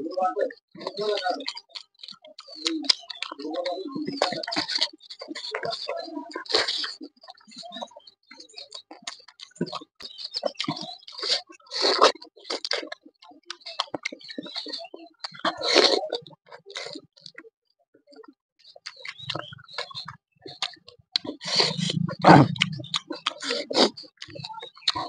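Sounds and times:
person chewing and smacking lips: 0.7s - 17.5s, 18.1s - 25.0s
bites and slurps: 4.0s - 7.1s, 8.7s - 17.4s, 18.8s - 25.0s.

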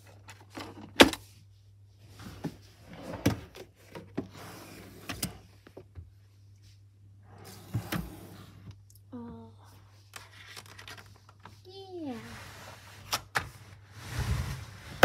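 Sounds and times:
rustling of drawer contents: 2.0s - 5.7s, 7.2s - 8.7s, 12.1s - 15.0s.

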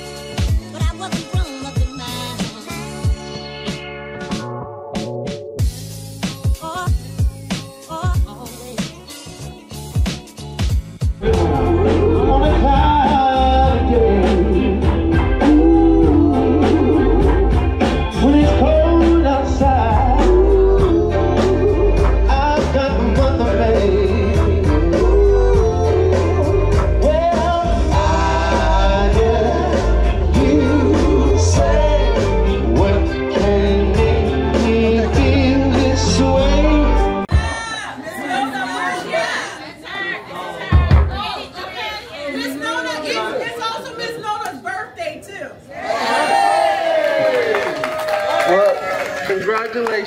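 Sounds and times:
steady drum beat: 0.0s - 3.3s, 5.6s - 36.4s
heavy bass line: 11.0s - 37.5s
person singing: 11.2s - 37.6s.

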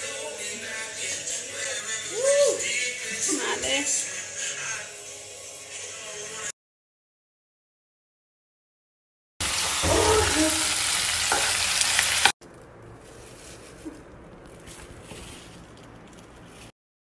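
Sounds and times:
food sizzling in a frying pan: 9.4s - 12.4s.

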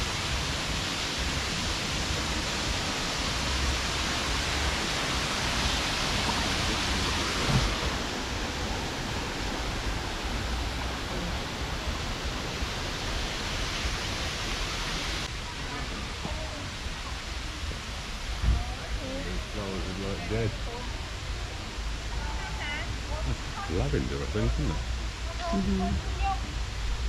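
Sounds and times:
water spraying on foliage: 0.0s - 17.3s.

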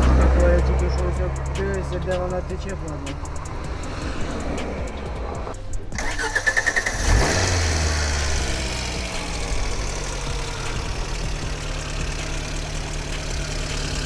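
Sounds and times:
motorcycle engine starting and idling: 5.6s - 14.0s.

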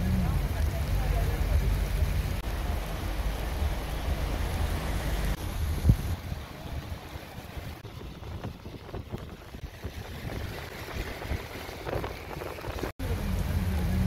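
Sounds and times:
steady rain: 0.0s - 14.0s
wind buffeting microphone: 5.0s - 12.9s.

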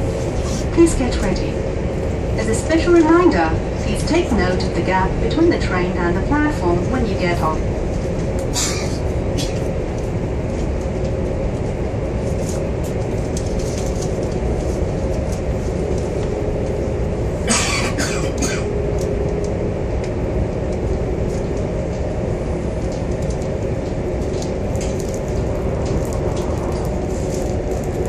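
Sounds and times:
train low rumble: 0.0s - 28.0s
sharp clicks and rattles: 22.8s - 28.0s.

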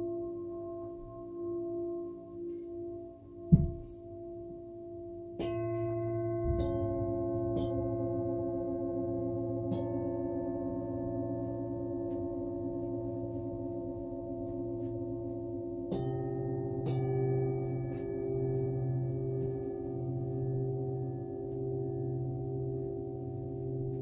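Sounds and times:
singing bowls ringing: 0.0s - 24.0s
mallet striking bowl: 3.4s - 4.0s, 5.4s - 13.1s, 14.4s - 24.0s.

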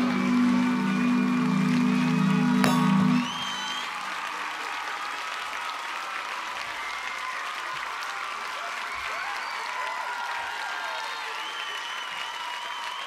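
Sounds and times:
band holding low note: 0.0s - 4.1s
crowd applauding: 0.0s - 13.0s.

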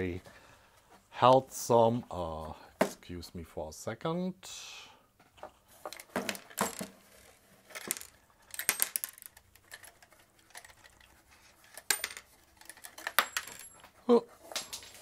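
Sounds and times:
metal parts rattling in box: 5.9s - 13.8s.

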